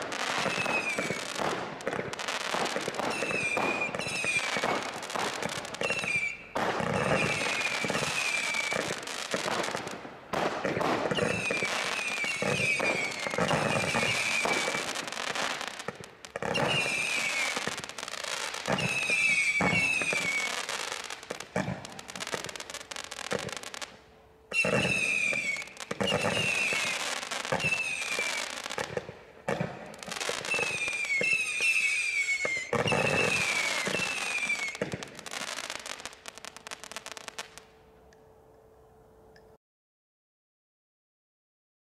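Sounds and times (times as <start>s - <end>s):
firework barrage firing: 0.0s - 23.8s
falling firework whistles: 0.0s - 37.6s
firework crackling: 0.0s - 37.7s.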